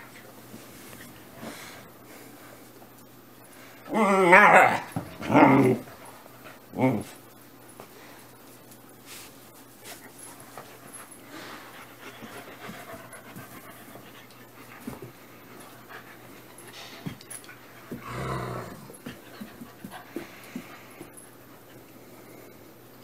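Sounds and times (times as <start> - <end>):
dogs panting: 9.9 - 22.0.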